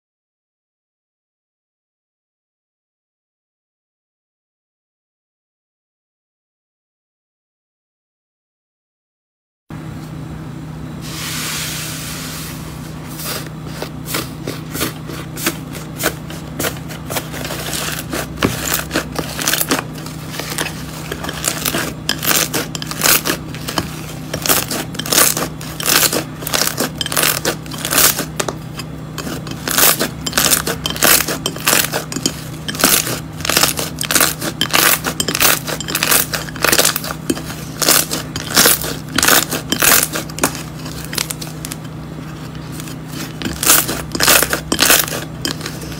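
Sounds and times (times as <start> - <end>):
slime crust crackling: 13.2 - 41.8.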